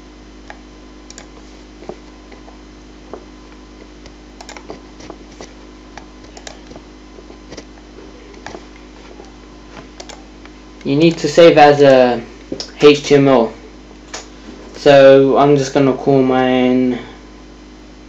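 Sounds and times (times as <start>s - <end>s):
low electrical hum: 0.0s - 18.0s
keyboard and mouse clicks: 0.4s - 2.4s, 4.0s - 8.6s, 10.0s - 10.2s.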